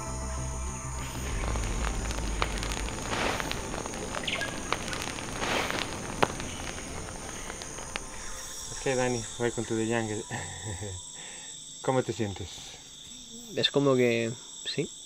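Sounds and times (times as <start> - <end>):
fire crackling and popping: 0.0 - 10.9
high insect drone: 0.0 - 15.0.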